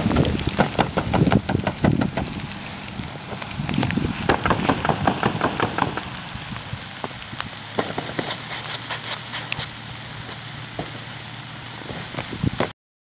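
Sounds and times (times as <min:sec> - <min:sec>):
wind gusting on microphone: 0:00.0 - 0:08.4, 0:11.7 - 0:12.7
sharp crackling clicks: 0:00.1 - 0:09.7.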